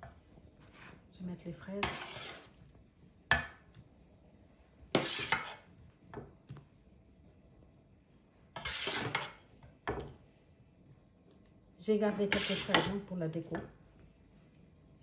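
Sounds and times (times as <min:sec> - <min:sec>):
metal spoon scraping metal tin: 0:01.8 - 0:02.5, 0:05.0 - 0:05.6, 0:08.6 - 0:09.4, 0:12.3 - 0:13.0.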